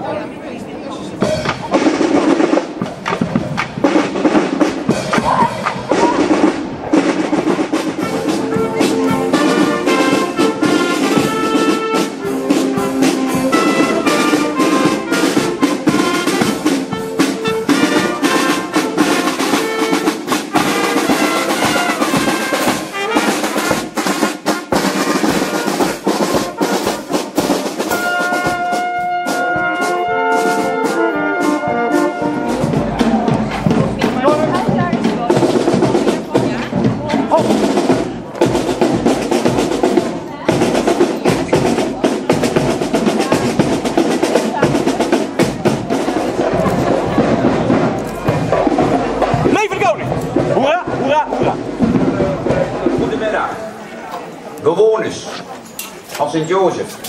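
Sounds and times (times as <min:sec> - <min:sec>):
snare drums march rhythm: 0:01.1 - 0:53.8
saxophones and trombones melody: 0:03.3 - 0:36.4.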